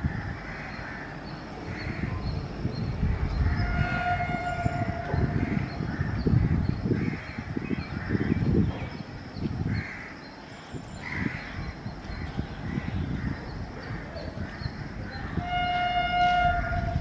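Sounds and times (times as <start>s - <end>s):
crows cawing: 0.0s - 1.2s
distant locomotive horn: 3.5s - 5.8s, 15.3s - 17.0s.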